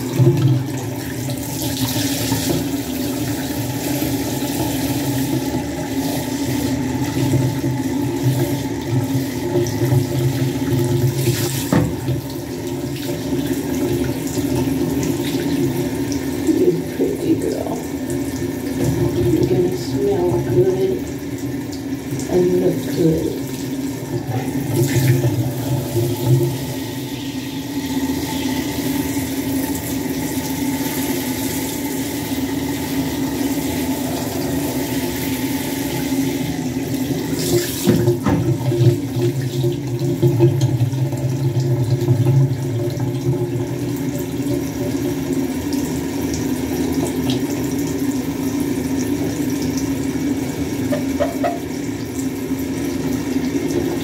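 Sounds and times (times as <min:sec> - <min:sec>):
shower sprayer water spraying: 0:00.0 - 0:40.5, 0:44.0 - 0:54.0
water splashing into bathtub: 0:00.0 - 0:54.0.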